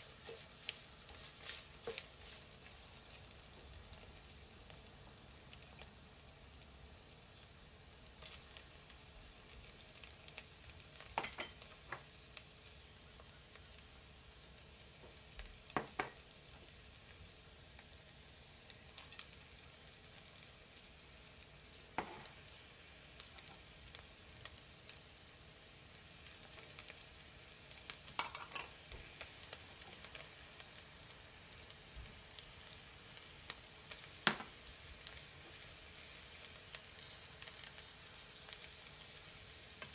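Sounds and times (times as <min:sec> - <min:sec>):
meat sizzling in a pot: 0:00.0 - 0:39.9
glass bowls knocking and clinking: 0:11.2 - 0:11.6.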